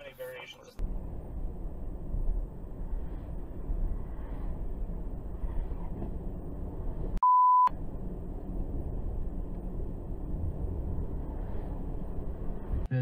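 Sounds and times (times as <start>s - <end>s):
car driving rumble: 0.0s - 13.0s
censor bleep tone: 7.2s - 7.7s.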